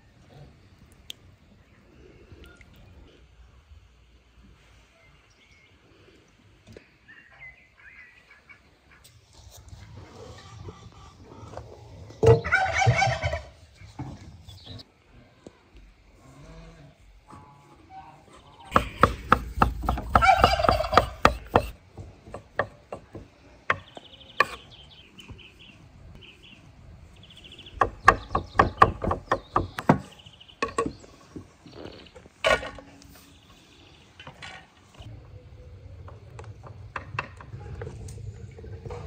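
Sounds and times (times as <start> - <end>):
turkey gobbling: 12.2 - 13.6, 20.2 - 21.4
knife chopping on wooden board: 18.8 - 23.8
low steady rumble: 35.0 - 39.0.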